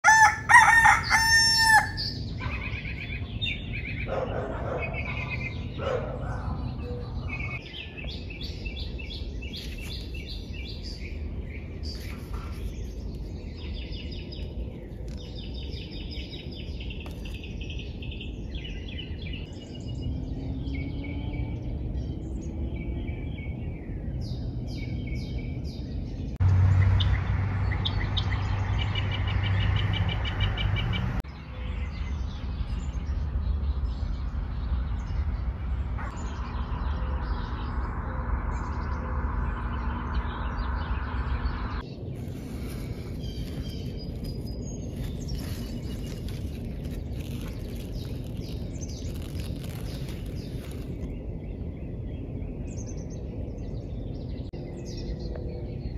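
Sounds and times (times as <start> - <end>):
birds singing and calling: 0.0 - 55.9
steady low rumble: 21.4 - 55.9
loud low hum: 32.5 - 45.4.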